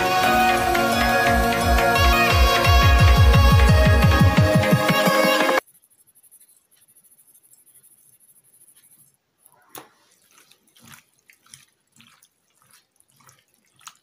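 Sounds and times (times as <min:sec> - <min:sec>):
electronic background music: 0:00.0 - 0:05.7.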